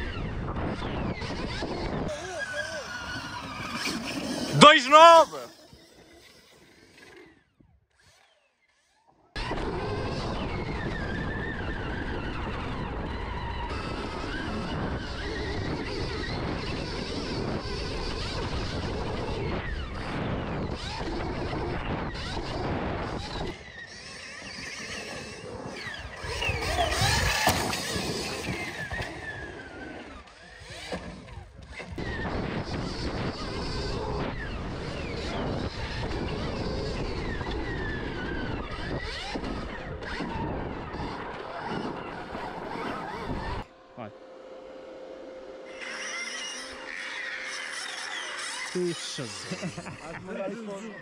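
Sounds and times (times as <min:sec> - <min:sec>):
dirt bike engines revving: 0:00.8 - 0:07.4, 0:09.4 - 0:43.8, 0:44.7 - 0:51.0.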